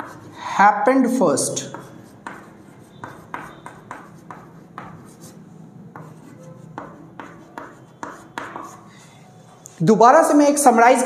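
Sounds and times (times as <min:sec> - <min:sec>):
pen scratching paper: 0:00.0 - 0:00.4, 0:01.6 - 0:09.6.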